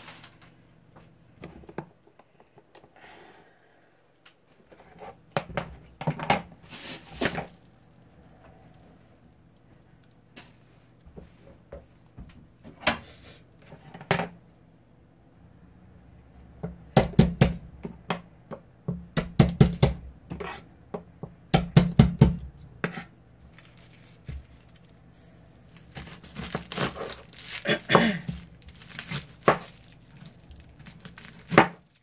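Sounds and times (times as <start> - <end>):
knife chopping on cutting board: 18.9 - 20.6.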